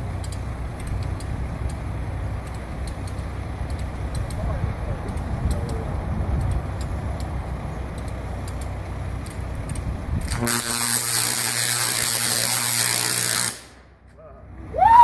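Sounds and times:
truck engine idling: 0.0s - 15.0s
electric arc buzzing and crackling: 10.2s - 13.8s.

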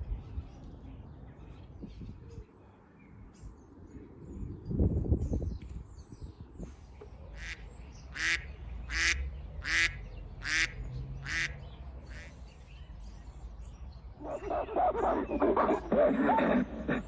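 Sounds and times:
bird giving harsh calls: 7.4s - 12.7s.

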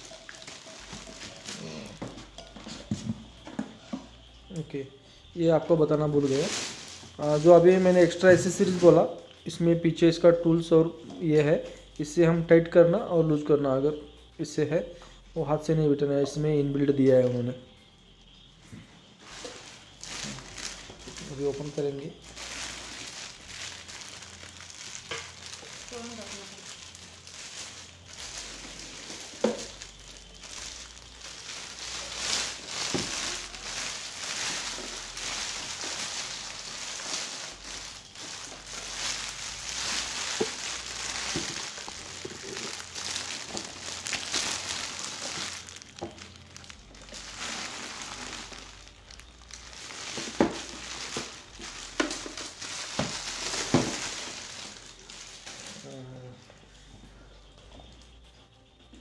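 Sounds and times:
plastic wrap crinkling: 0.0s - 4.8s, 5.5s - 9.7s, 19.1s - 56.7s.

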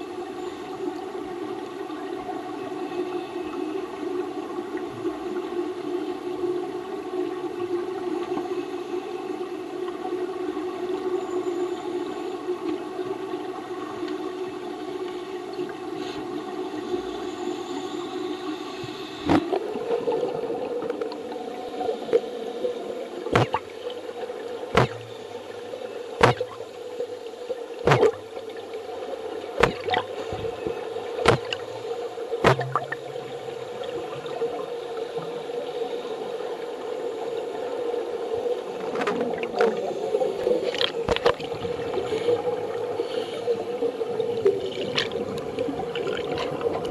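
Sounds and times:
underwater hum with pitched tones: 0.0s - 46.9s
sharp underwater clicks: 23.3s - 23.7s, 24.7s - 25.3s, 26.2s - 26.6s, 27.8s - 28.3s, 29.6s - 30.5s, 31.2s - 31.7s, 32.4s - 33.1s, 40.6s - 41.5s.

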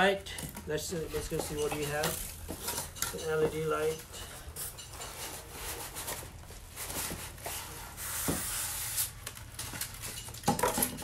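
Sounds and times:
cardboard and plastic rustling: 0.2s - 11.0s.

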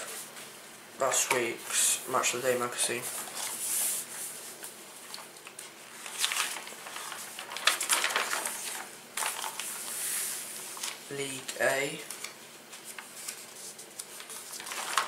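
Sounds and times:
paper pages rustling: 2.9s - 11.2s, 12.0s - 15.0s.

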